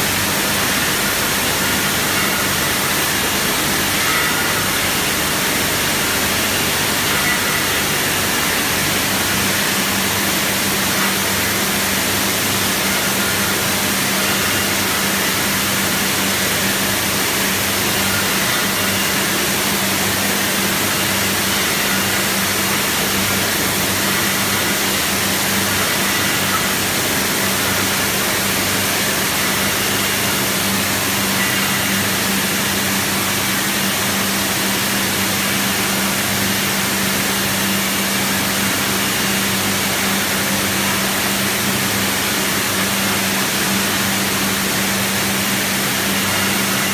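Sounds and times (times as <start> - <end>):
bottling machinery running: 0.0 - 46.9.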